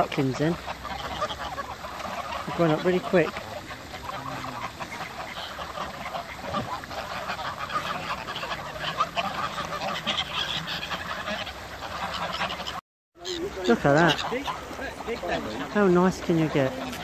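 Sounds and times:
geese honking: 0:00.0 - 0:17.0.

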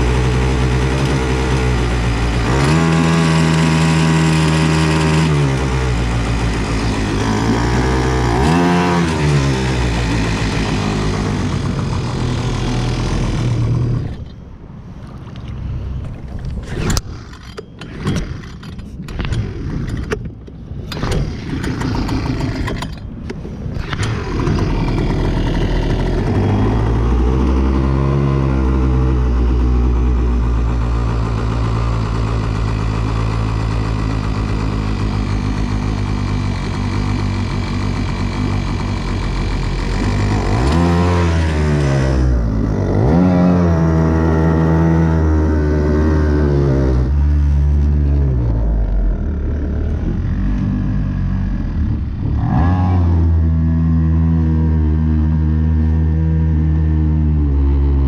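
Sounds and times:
outboard motor running unevenly: 0:00.0 - 0:08.2, 0:21.0 - 0:22.8, 0:23.8 - 0:41.6.

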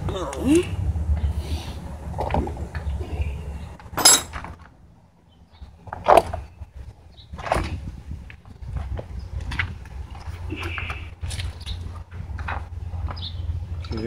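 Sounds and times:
metal hand tools clinking: 0:04.0 - 0:04.4.

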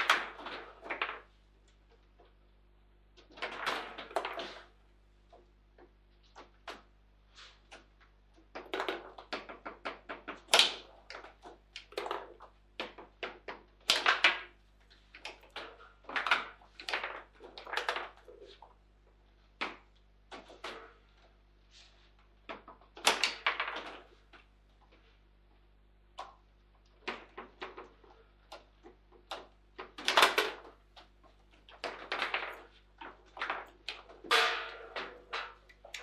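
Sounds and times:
foosball ball cracking and knocking: 0:00.0 - 0:01.3, 0:07.7 - 0:14.5, 0:22.5 - 0:24.5, 0:26.2 - 0:36.0.

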